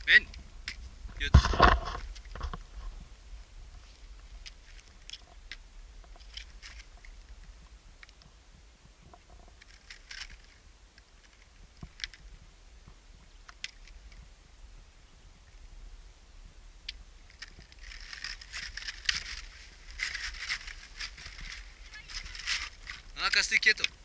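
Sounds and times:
low steady rumble: 0.0s - 24.0s
footsteps crunching on rock: 17.8s - 23.2s.

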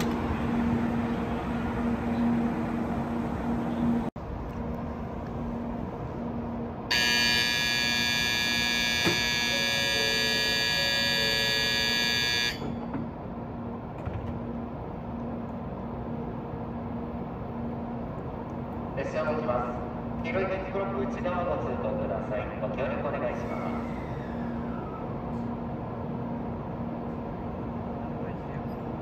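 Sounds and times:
platform departure bell ringing: 6.9s - 13.2s.

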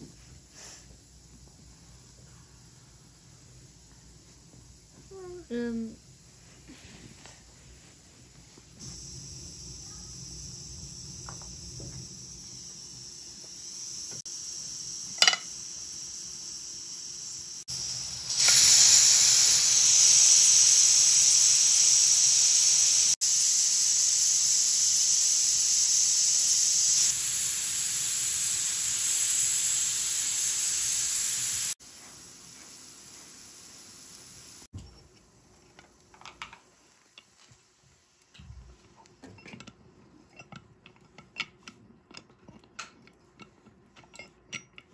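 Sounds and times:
pressure cooker steam hissing: 0.0s - 34.7s.

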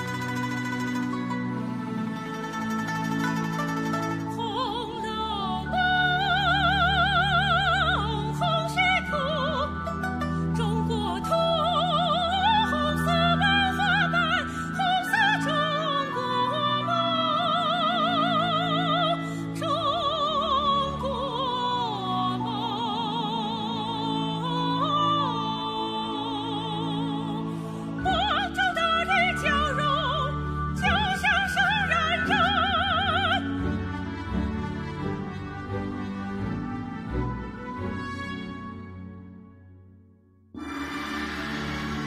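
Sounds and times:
instrumental accompaniment: 0.0s - 6.9s
soprano singing: 0.0s - 38.5s
orchestral accompaniment: 0.0s - 39.6s, 40.6s - 42.0s.

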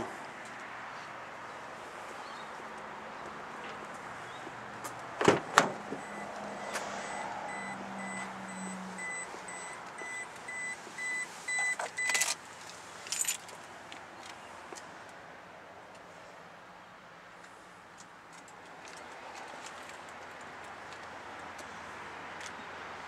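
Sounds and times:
car warning chime beeping: 6.0s - 6.4s, 7.0s - 12.3s.

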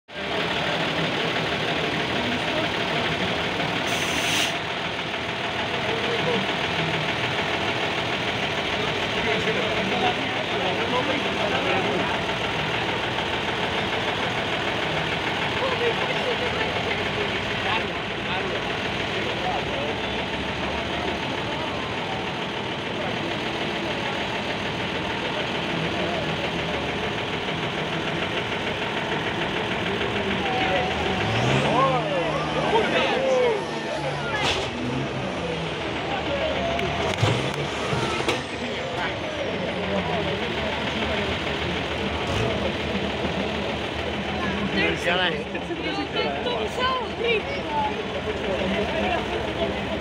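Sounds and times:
truck engine running: 0.1s - 50.0s
short hiss: 3.9s - 4.6s.

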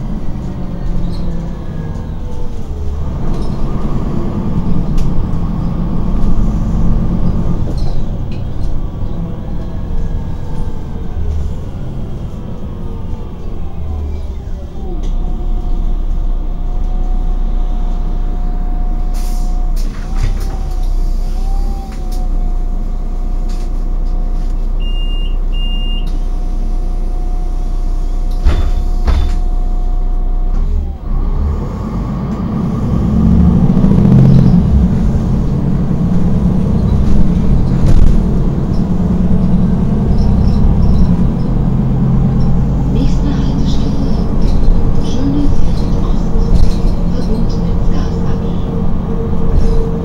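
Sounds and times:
bus engine idling and revving: 0.0s - 50.0s
short high beeps: 24.8s - 26.1s.

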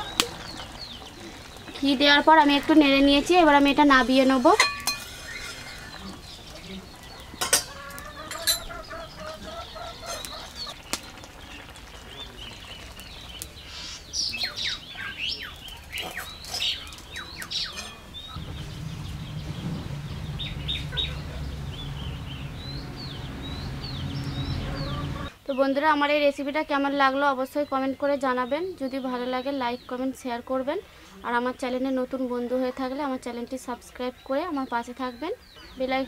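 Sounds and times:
birds chirping: 0.0s - 25.8s
low steady hum: 17.8s - 25.3s.

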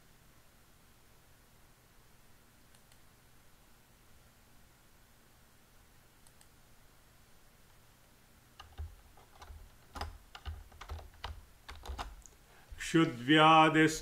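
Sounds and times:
typing on computer keyboard: 8.6s - 12.3s.

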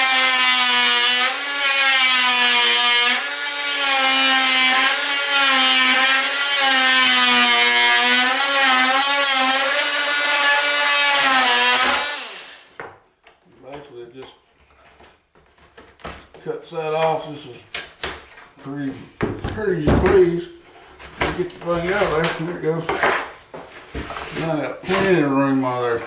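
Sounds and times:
oscillating multi-tool cutting wood: 0.0s - 12.7s.

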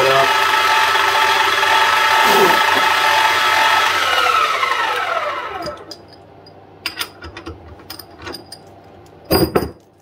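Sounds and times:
milling machine motor winding down: 0.0s - 6.0s.

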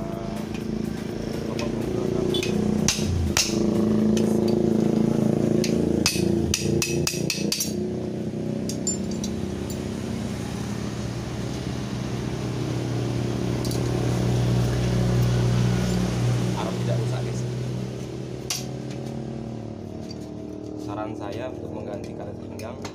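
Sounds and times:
hammer striking steel: 1.6s - 4.6s, 5.6s - 7.8s.

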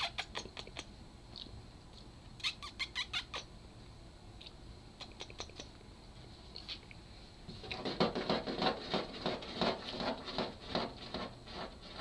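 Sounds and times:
kittens scuffling and scratching: 7.5s - 12.0s.

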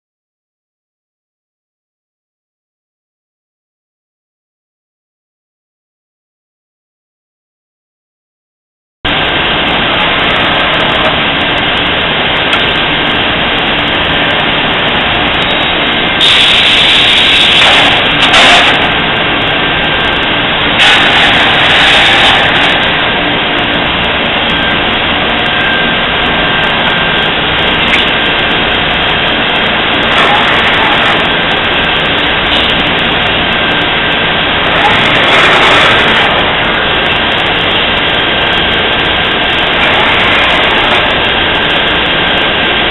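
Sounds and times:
high whine: 9.1s - 42.9s
machining center running: 9.1s - 42.9s
hissing bursts: 15.7s - 23.2s, 29.5s - 38.4s, 39.6s - 42.1s.

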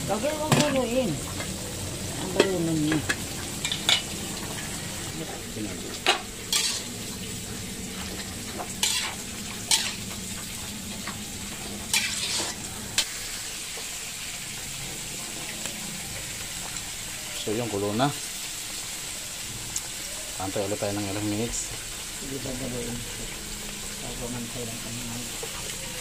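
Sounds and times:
food sizzling in a pan: 0.0s - 26.0s.

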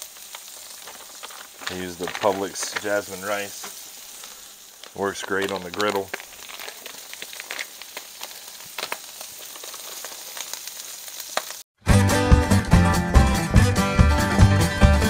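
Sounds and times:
food sizzling on a griddle: 0.0s - 11.7s
acoustic guitar country music: 11.8s - 15.0s.

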